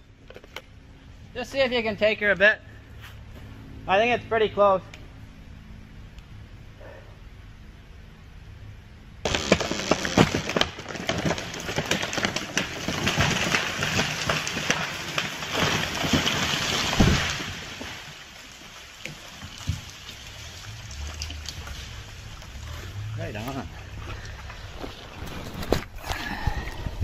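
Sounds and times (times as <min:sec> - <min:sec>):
branches crashing: 0:09.2 - 0:26.2
wood cracking and splitting: 0:09.2 - 0:26.9
heavy thump of falling tree: 0:15.5 - 0:18.0.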